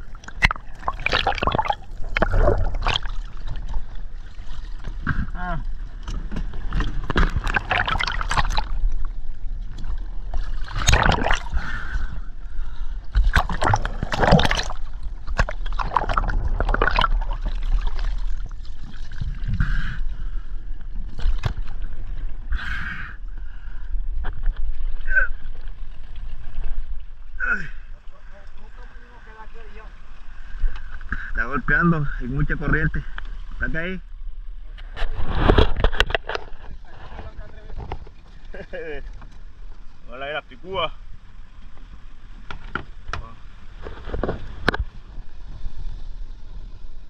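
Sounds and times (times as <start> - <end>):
water splashing against boat hull: 0.0 - 11.8, 13.1 - 19.8
underwater gurgling: 0.0 - 40.1.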